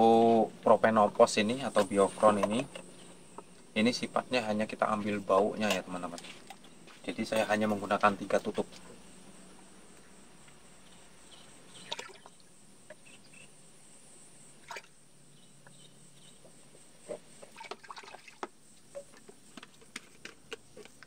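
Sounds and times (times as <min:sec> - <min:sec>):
liquid trickling into cap: 0:17.5 - 0:18.5.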